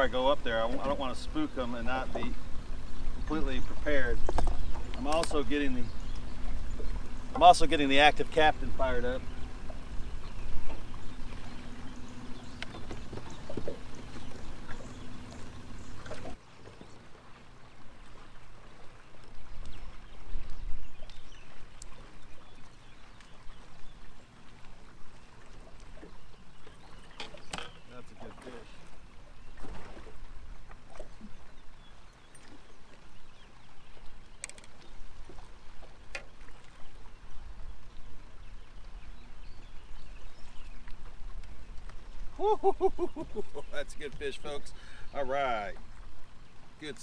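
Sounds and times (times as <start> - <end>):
wind rumbling on microphone: 0.0 - 16.4
water lapping against boat hull: 0.0 - 47.0.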